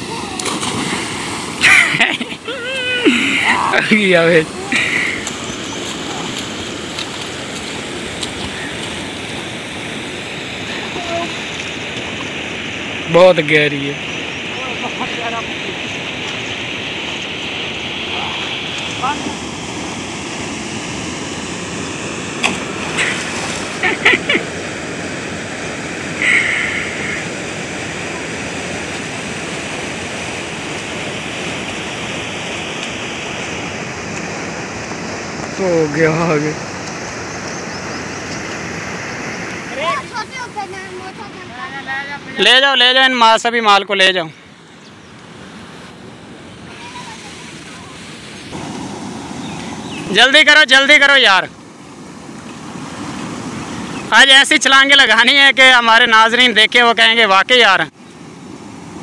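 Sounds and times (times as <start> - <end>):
swimming splashes: 0.0 - 12.2, 17.5 - 41.6
turbulent water rushing: 0.0 - 44.6, 45.3 - 59.0.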